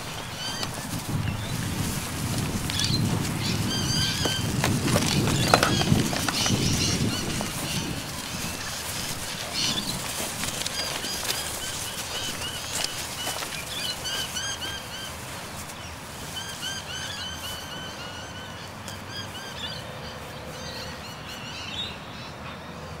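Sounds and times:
birds chirping: 0.0s - 23.0s.

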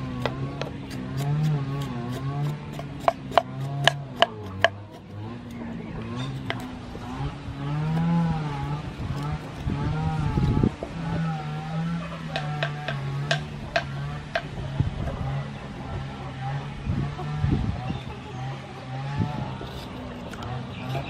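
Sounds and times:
droning hum: 0.0s - 21.0s
spoon scraping ginger: 6.2s - 6.8s, 19.6s - 21.0s.

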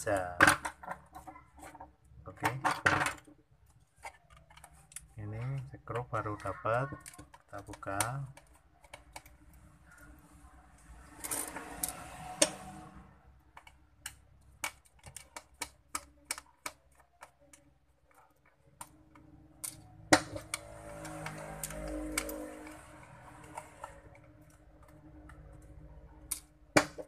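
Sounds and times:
sharp plastic clicks: 13.5s - 22.8s
metal scraping on plastic: 20.2s - 25.7s.

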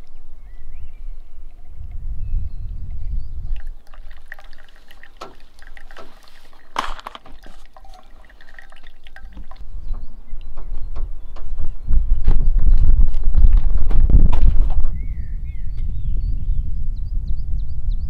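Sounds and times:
coffee dripping into metal cup: 2.9s - 9.6s
liquid splash: 3.5s - 9.6s
water pouring onto coffee grounds: 3.5s - 9.6s.

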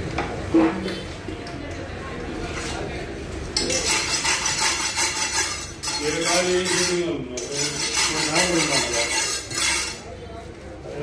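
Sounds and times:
knife blade scraping: 3.6s - 10.1s.

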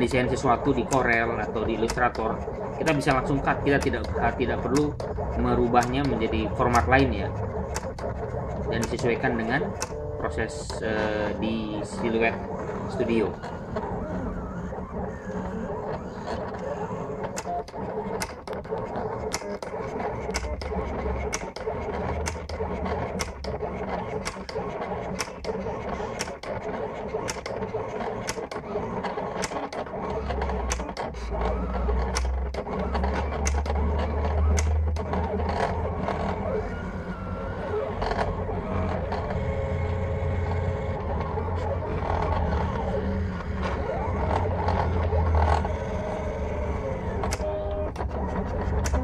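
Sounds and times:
cutting plotter motors whirring: 0.0s - 49.0s
sharp clicks: 0.2s - 11.0s, 11.9s - 24.6s, 25.2s - 26.6s, 27.2s - 27.6s, 28.2s - 36.8s.

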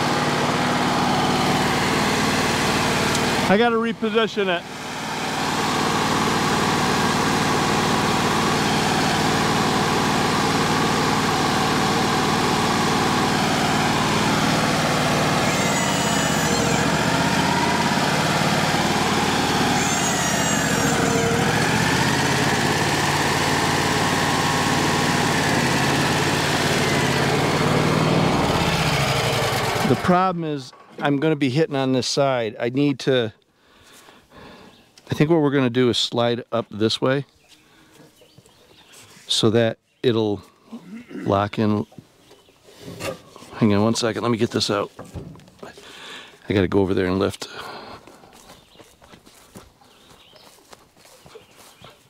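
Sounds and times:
sawmill engine running: 0.0s - 31.3s.

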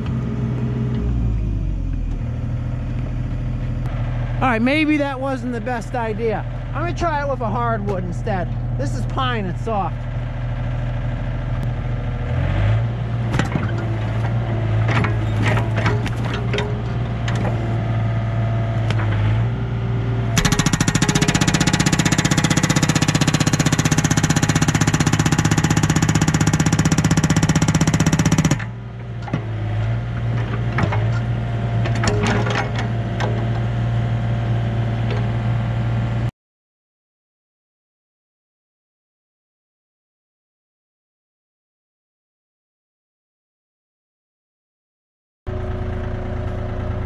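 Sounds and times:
excavator diesel engine running: 0.0s - 36.3s, 45.5s - 47.0s
hydraulic hammer pounding wood: 13.3s - 17.9s, 20.4s - 33.8s.

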